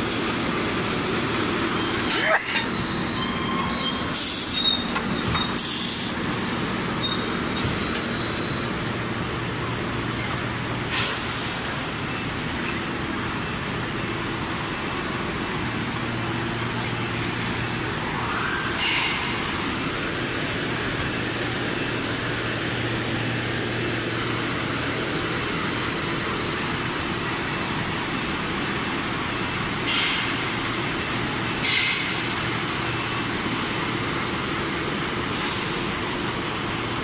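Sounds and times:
short hissing bursts: 0:04.2 - 0:04.6, 0:05.6 - 0:06.2.

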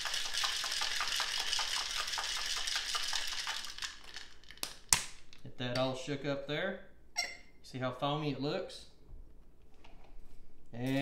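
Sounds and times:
cocktail shaker rattling with ice: 0:00.0 - 0:04.7.

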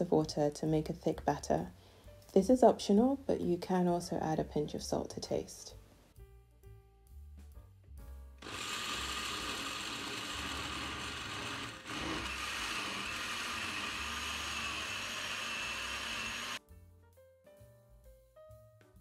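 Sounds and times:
blender running: 0:08.4 - 0:16.6.

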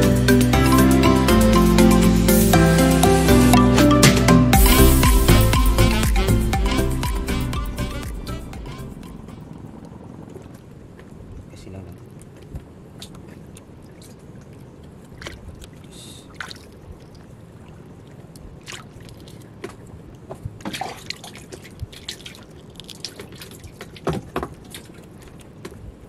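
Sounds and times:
low wash of water: 0:08.6 - 0:26.0
water dripping and splashing: 0:09.8 - 0:26.0.

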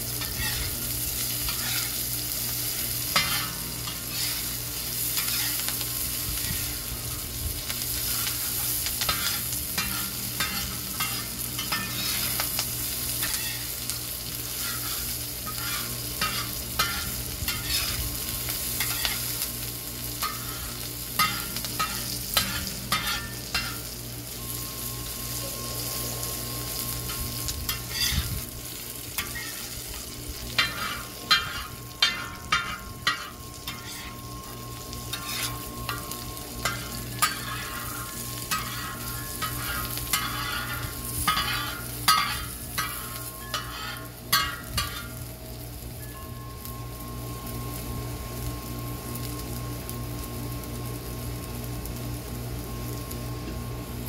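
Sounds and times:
onions sizzling on a metal disc: 0:00.0 - 0:54.0
metal spoon scraping and clinking: 0:09.1 - 0:12.4, 0:20.2 - 0:23.8, 0:30.6 - 0:34.5, 0:35.1 - 0:45.1.

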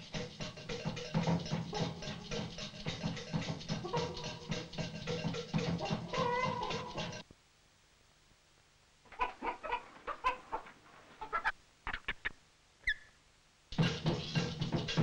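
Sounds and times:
clucking chicken-like calls: 0:00.0 - 0:07.2, 0:09.1 - 0:13.0
music: 0:00.0 - 0:07.2, 0:13.7 - 0:15.0.

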